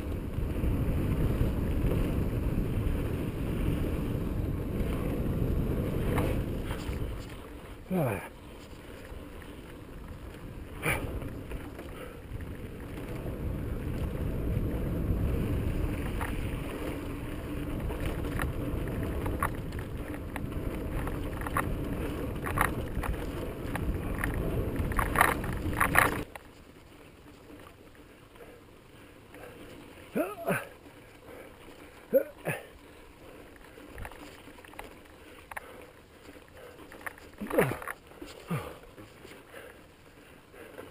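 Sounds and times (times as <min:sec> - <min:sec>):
bike clicks and rattles: 0:00.0 - 0:07.8, 0:08.4 - 0:26.7, 0:33.3 - 0:40.9
wind on microphone: 0:00.0 - 0:26.3
bike tyres rumbling on rock: 0:00.0 - 0:27.8, 0:29.4 - 0:40.9.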